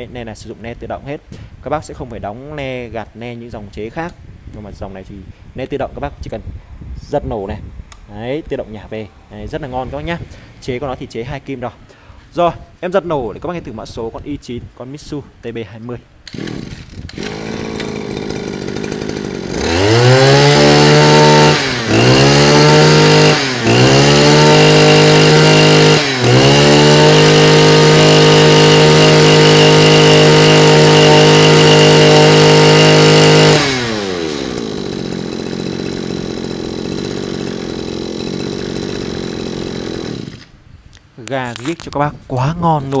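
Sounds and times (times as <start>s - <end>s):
brush cutter engine revving: 16.2s - 40.6s.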